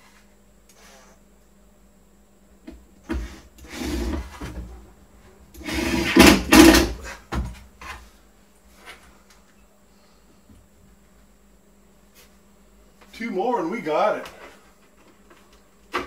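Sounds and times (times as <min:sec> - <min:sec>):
scraping in wooden cabinet: 0:03.1 - 0:04.7, 0:05.6 - 0:07.2.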